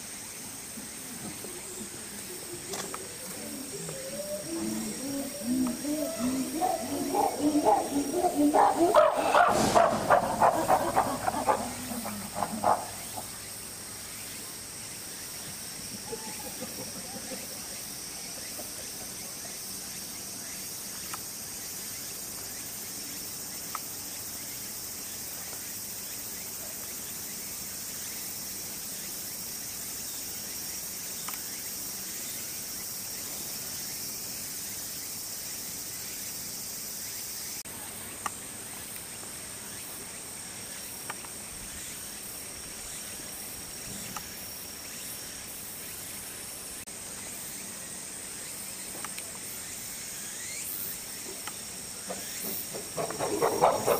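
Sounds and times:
insects chorus: 0.0s - 53.9s
faint sharp clicks: 31.2s - 31.4s, 49.0s - 49.4s.

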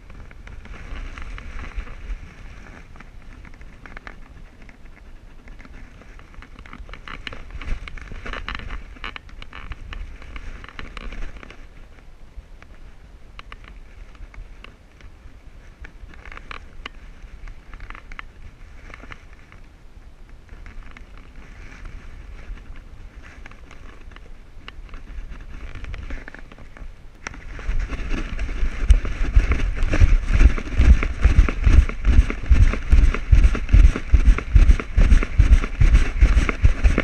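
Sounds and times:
camera rubbing and knocking: 0.0s - 11.8s, 20.5s - 37.0s
low wind rumble: 0.0s - 37.0s
dog footfalls: 27.3s - 37.0s.

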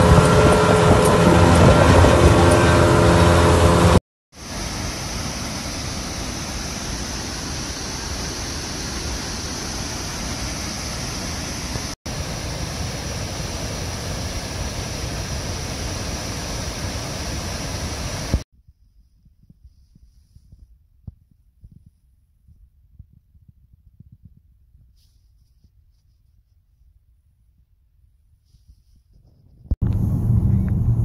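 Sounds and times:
outboard engine running: 0.0s - 18.4s
waterfall rushing: 0.0s - 18.4s.

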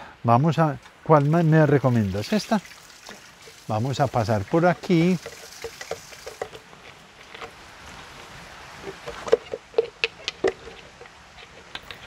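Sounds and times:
plastic bottle crinkling: 4.7s - 12.0s.

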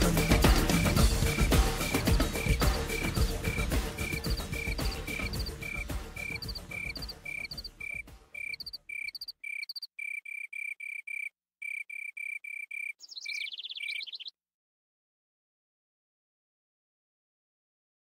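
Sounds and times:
music: 0.0s - 8.8s
higher insect trill: 0.0s - 13.0s
cricket chirps: 0.0s - 14.2s.

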